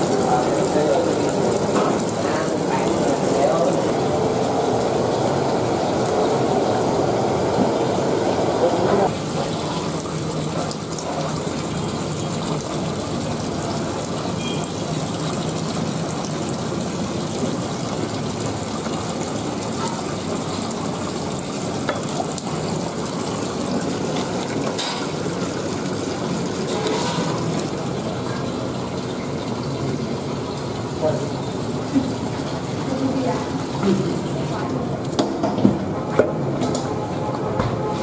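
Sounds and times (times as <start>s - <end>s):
steady rushing noise: 3.7s - 9.1s.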